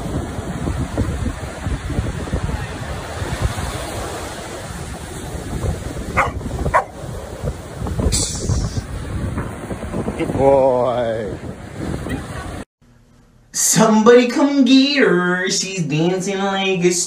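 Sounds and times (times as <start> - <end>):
surf breaking on a beach: 0.0 - 12.6
dog barking: 6.2 - 7.0.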